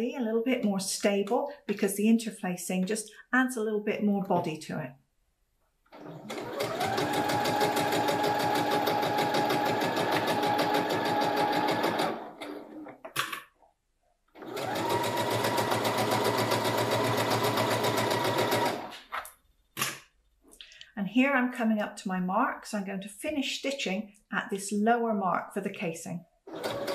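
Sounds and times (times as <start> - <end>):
sewing machine stitching: 5.9 - 13.0, 14.4 - 19.0, 26.5 - 26.9.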